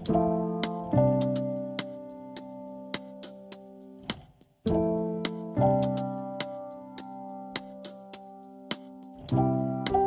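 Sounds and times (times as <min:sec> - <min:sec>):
held chords: 0:00.0 - 0:10.0
light ticking beat: 0:00.0 - 0:10.0.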